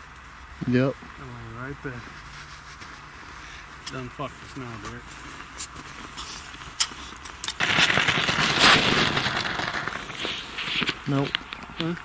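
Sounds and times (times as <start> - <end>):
clothing rustling and crackling: 1.9 - 7.4.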